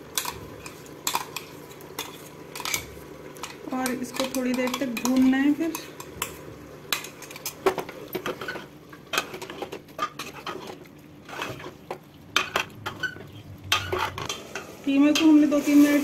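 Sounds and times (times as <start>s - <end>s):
meat frying in oil: 0.0s - 16.0s
metal spatula scraping pressure cooker: 8.2s - 11.8s, 12.4s - 16.0s.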